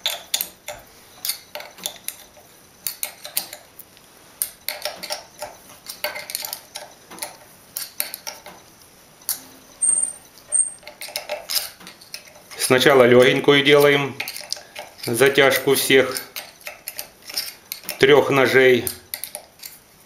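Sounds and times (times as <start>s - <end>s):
wrench clicking on metal bolts: 0.0s - 3.6s, 4.4s - 8.5s, 9.3s - 19.8s
high squeak: 9.4s - 10.8s.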